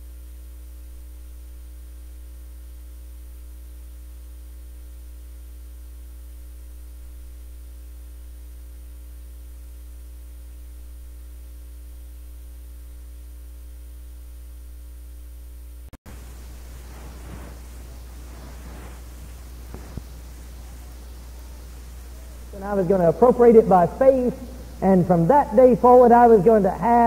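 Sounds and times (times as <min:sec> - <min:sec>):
electrical mains hum: 0:00.0 - 0:27.0
faint hiss: 0:16.1 - 0:27.0.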